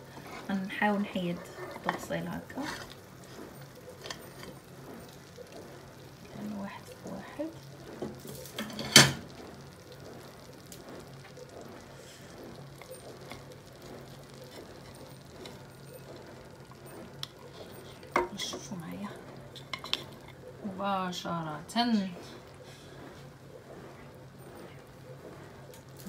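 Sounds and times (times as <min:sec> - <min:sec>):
plates clinking against a pot: 0:18.1 - 0:18.6.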